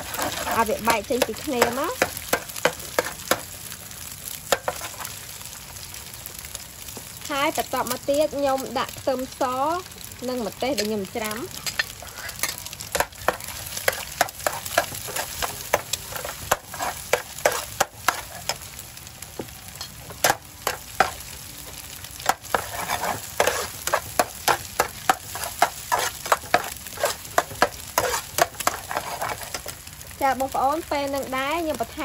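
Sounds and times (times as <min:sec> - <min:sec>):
metal spatula scraping pan: 0:00.0 - 0:03.2, 0:10.7 - 0:18.6, 0:22.3 - 0:29.7
food sizzling in hot oil: 0:00.0 - 0:32.0.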